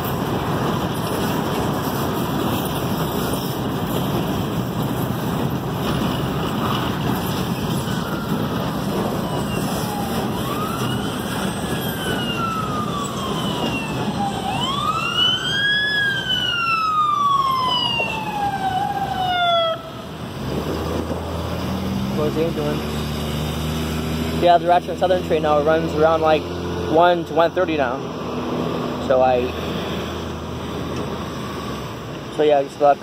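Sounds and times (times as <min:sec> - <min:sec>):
freight train rolling on rails: 0:00.0 - 0:15.1
emergency siren wailing: 0:05.4 - 0:21.6.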